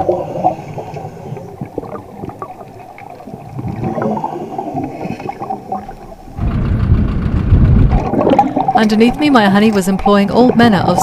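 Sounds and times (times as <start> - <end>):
underwater gurgling and bubbles: 0.0 - 11.0
loud low rumble: 5.9 - 9.5.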